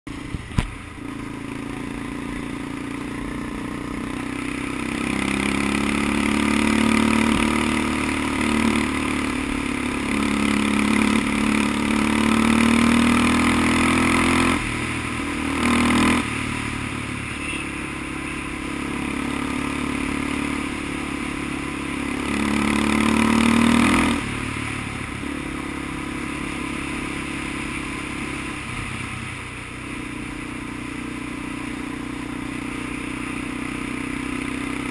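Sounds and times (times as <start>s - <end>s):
off-road vehicle engine revving: 4.0s - 14.7s, 15.3s - 21.4s, 22.0s - 24.4s.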